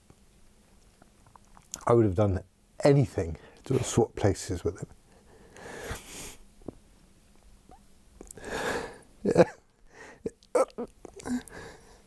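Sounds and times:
sniffling in-breath: 5.2s - 6.4s, 8.4s - 9.1s, 11.2s - 12.0s
man crying: 9.2s - 9.6s.

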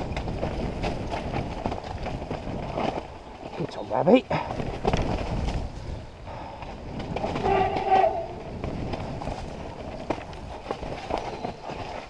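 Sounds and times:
bike knocking on roots and rocks: 0.0s - 12.0s
mountain bike rattling: 0.0s - 12.0s
brakes squealing: 7.2s - 8.6s.

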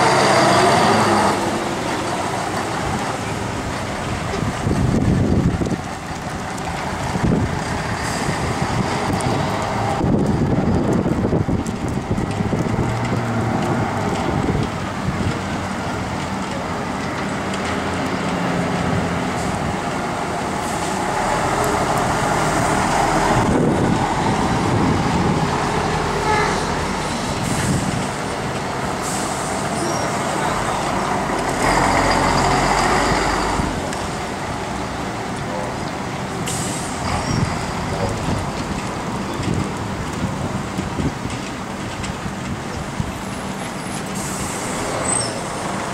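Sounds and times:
diesel buses accelerating: 0.0s - 45.9s
air brake hiss: 29.0s - 29.6s.

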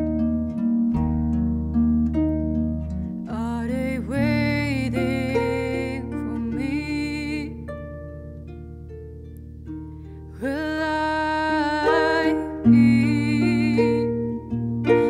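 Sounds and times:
harp playing: 0.0s - 15.0s
woman singing: 3.3s - 7.7s, 10.3s - 15.0s.

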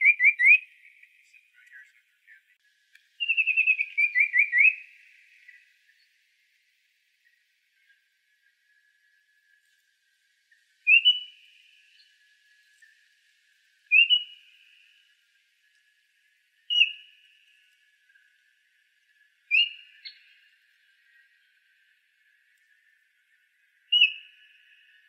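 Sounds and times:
bird whistling call: 0.0s - 0.8s, 3.2s - 5.6s, 10.9s - 11.5s, 13.9s - 14.6s, 16.7s - 17.1s, 19.5s - 20.2s, 23.9s - 24.4s.

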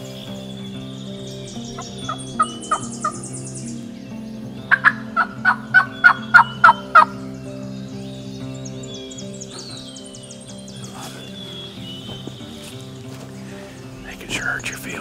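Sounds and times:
turkey yelping: 4.7s - 7.1s.

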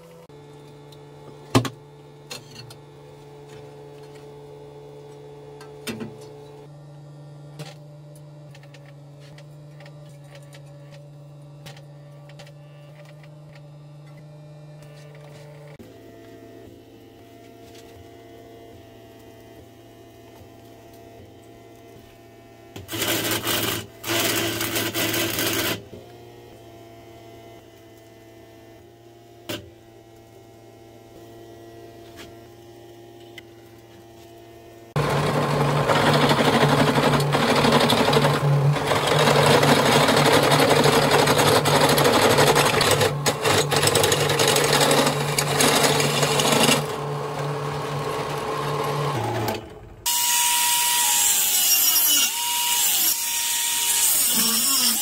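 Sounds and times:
drill press cutting steel: 22.8s - 25.9s, 35.0s - 55.0s
grinder cutting steel: 22.8s - 26.0s, 31.0s - 55.0s
machine motor humming: 34.1s - 50.1s.

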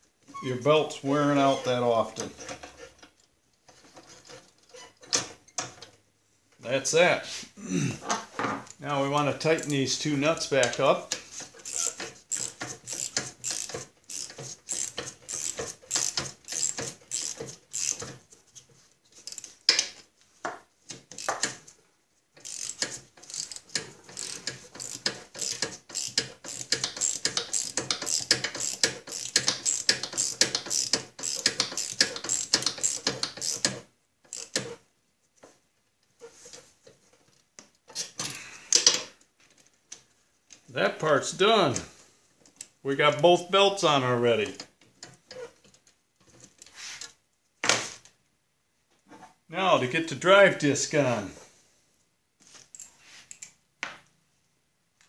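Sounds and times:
socket ratchet clicking: 11.6s - 18.1s, 22.4s - 34.7s.

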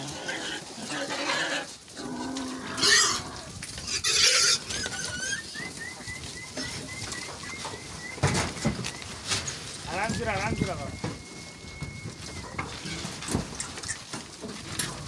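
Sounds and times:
pigs squealing and grunting: 0.0s - 8.9s, 11.3s - 14.0s.

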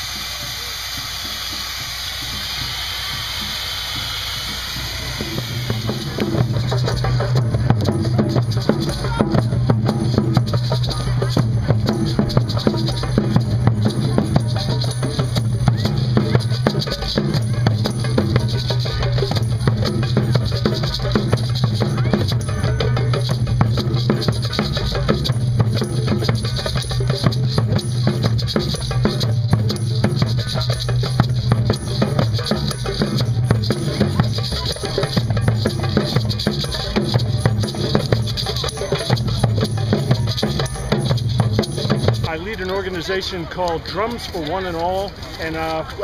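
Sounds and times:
chainsaw cutting ice: 0.0s - 6.7s
hand drums playing: 0.0s - 46.0s
shakers: 0.0s - 46.0s.

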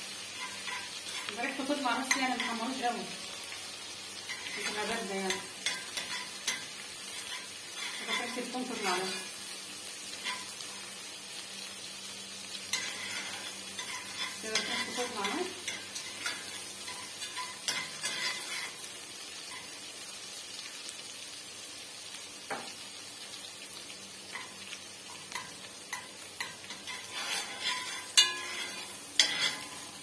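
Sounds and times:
garlic sizzling in oil: 0.0s - 30.0s
spoon scraping a pot: 0.4s - 1.3s, 4.3s - 9.3s, 12.7s - 18.8s, 25.3s - 29.9s
spoon clinking on pot: 25.3s - 29.7s.

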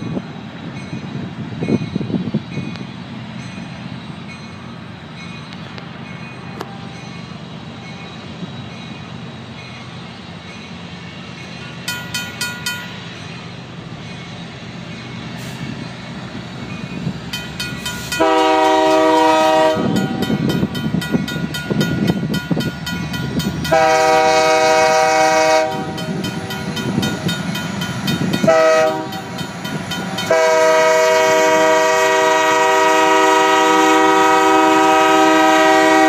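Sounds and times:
diesel locomotive rumble: 0.0s - 36.0s
railroad crossing bell ringing: 0.0s - 36.0s.

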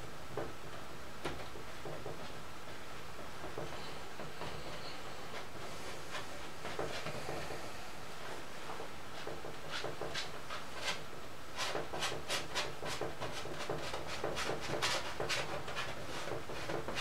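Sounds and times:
low steady hum: 0.0s - 11.6s
paintbrush scrubbing on canvas: 4.5s - 8.5s, 9.1s - 17.0s.

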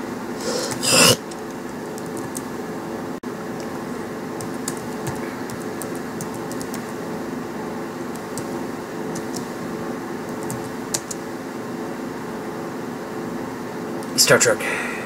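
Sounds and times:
steady mechanical hum: 0.0s - 15.0s
keyboard keys clicking: 1.3s - 2.5s, 4.4s - 6.9s, 8.1s - 8.5s, 9.1s - 9.5s, 10.2s - 11.2s.

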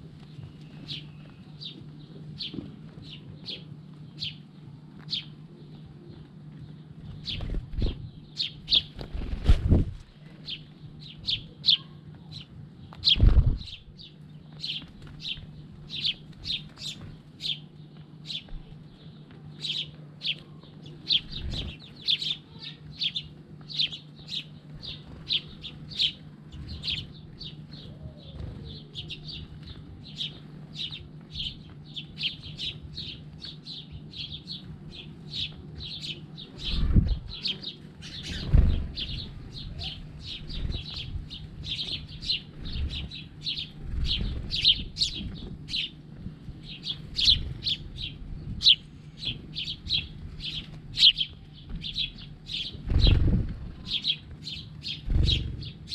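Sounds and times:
sparrows chirping: 0.0s - 55.9s.

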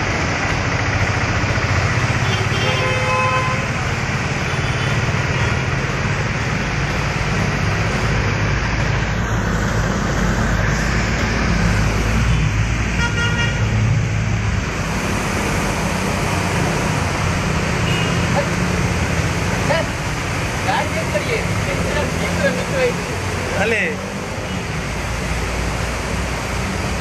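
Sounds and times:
engines rumbling: 0.0s - 27.0s
heavy rain: 0.0s - 27.0s
vehicles splashing through water: 0.0s - 27.0s
car horn toot: 2.2s - 3.7s, 13.0s - 13.6s, 17.8s - 18.2s.

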